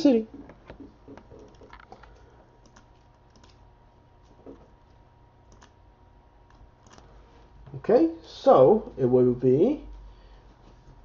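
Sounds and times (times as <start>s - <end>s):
keyboard and mouse clicks: 0.4s - 3.6s, 4.2s - 5.8s, 6.5s - 7.1s.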